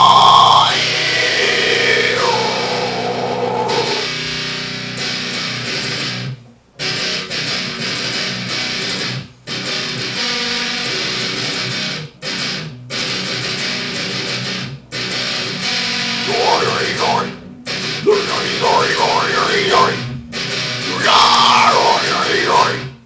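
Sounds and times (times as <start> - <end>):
person vocalizing: 0.0 - 4.1, 16.3 - 17.4, 18.0 - 20.0, 20.8 - 22.8
electric guitar riff: 0.0 - 23.0.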